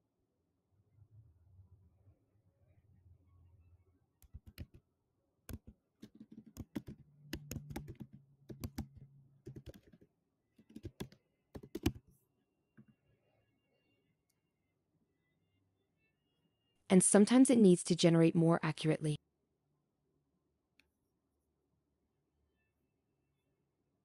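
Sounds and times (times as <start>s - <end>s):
computer keyboard typing: 4.2s - 4.8s, 5.5s - 12.0s.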